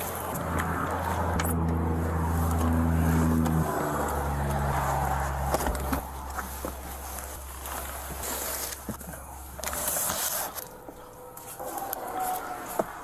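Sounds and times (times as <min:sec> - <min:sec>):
vehicle engine idling: 0:00.0 - 0:10.0.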